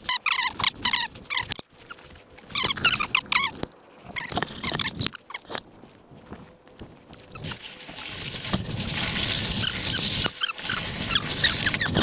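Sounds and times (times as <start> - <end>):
parrot chirping: 0.0 - 5.6.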